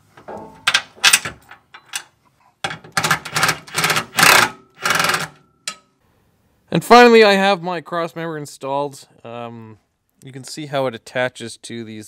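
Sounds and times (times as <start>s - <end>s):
hand ratchet clicking: 3.0s - 5.4s.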